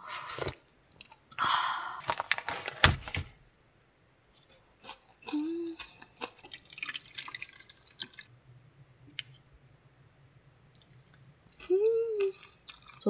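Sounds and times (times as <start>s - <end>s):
person humming: 5.3s - 5.9s, 11.6s - 12.4s
soup splashing and dripping: 6.3s - 8.3s.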